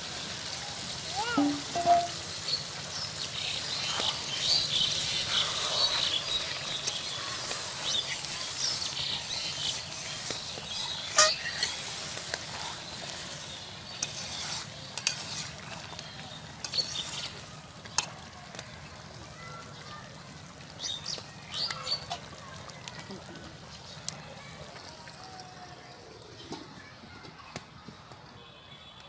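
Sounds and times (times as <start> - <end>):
curry sizzling in a wok: 0.0 - 26.2
metal spatula scraping pan: 1.4 - 2.2, 10.8 - 13.0, 13.9 - 15.9, 16.6 - 17.3.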